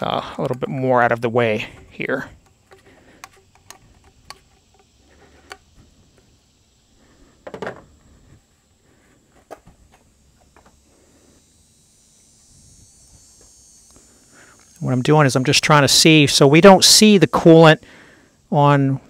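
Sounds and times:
rubber hose handling clicks: 0:02.4 - 0:05.7.

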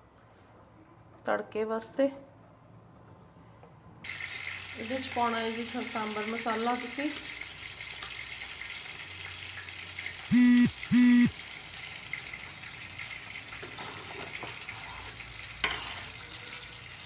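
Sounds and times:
short electronic beeps: 0:10.3 - 0:11.3.

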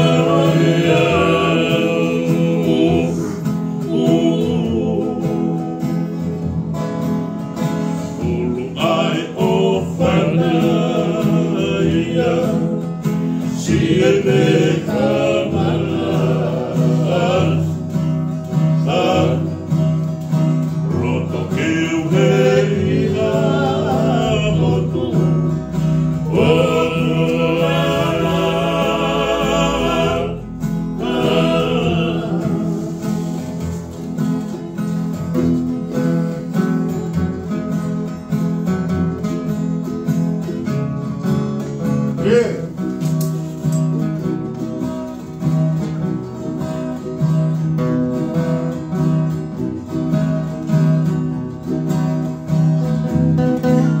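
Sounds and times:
men singing together: 0:00.0 - 0:06.3, 0:07.9 - 0:34.0
strummed acoustic guitars: 0:00.0 - 0:54.0
ukulele: 0:00.0 - 0:54.0.

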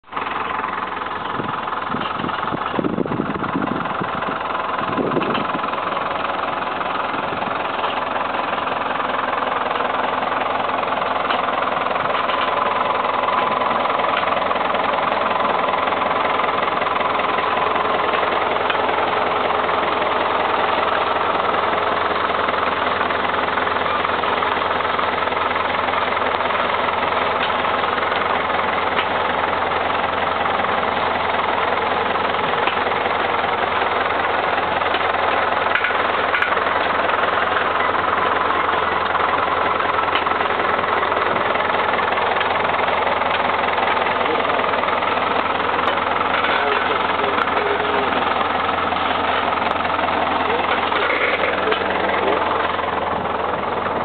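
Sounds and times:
tractor engine running: 0:00.0 - 0:54.0.

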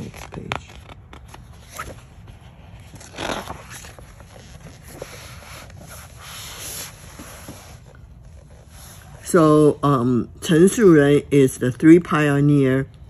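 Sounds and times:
book pages being turned: 0:00.0 - 0:09.1.

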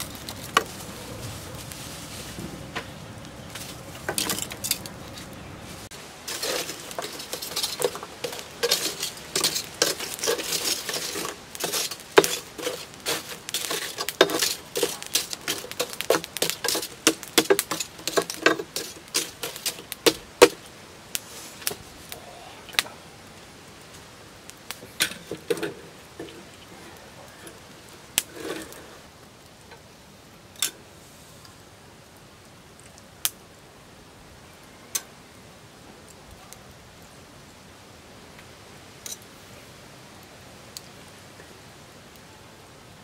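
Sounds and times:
charcoal lumps clinking: 0:00.0 - 0:22.2, 0:24.6 - 0:29.1.

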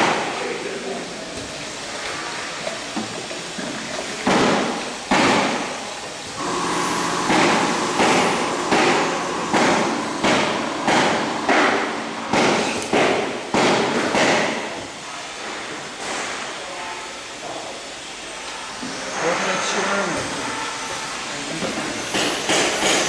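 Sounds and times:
machine hum: 0:06.3 - 0:13.6.

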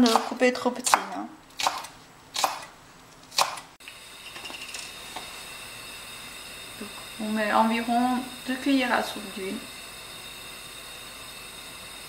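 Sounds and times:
knife chopping on cutting board: 0:00.0 - 0:02.7
faint hiss: 0:03.8 - 0:12.0.

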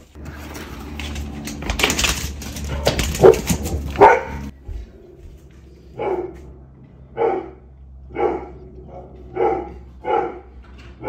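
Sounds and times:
dog barking: 0:03.2 - 0:04.5, 0:06.0 - 0:06.5, 0:07.2 - 0:10.6.

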